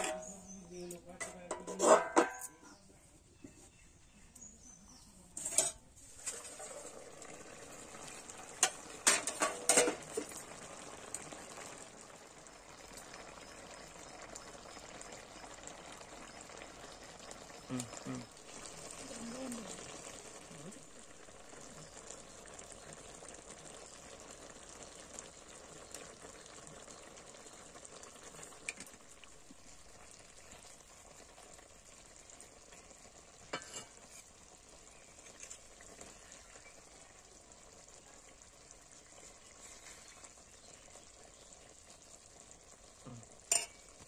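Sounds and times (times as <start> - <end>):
curry sizzling in a pan: 0.0 - 2.8, 3.7 - 44.0
steel spoon clinking on pan: 43.5 - 43.8.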